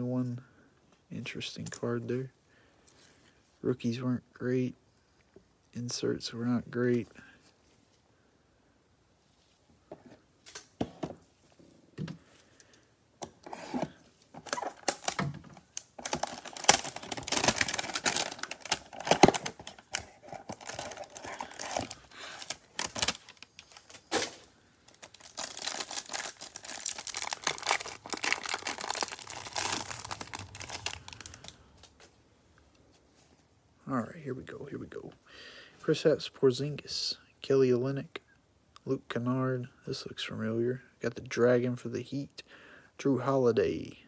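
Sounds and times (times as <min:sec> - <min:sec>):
plastic wrapper crinkling and tearing: 0:13.4 - 0:32.0.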